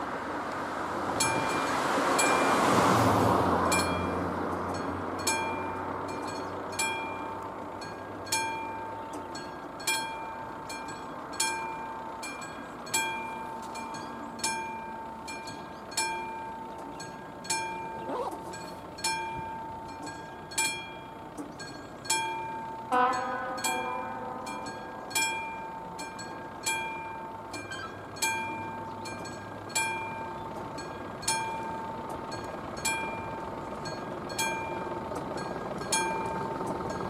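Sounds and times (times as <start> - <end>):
level crossing warning bell: 1.2 - 2.8, 3.6 - 37.0
sustained multi-pitch tone: 22.5 - 29.1.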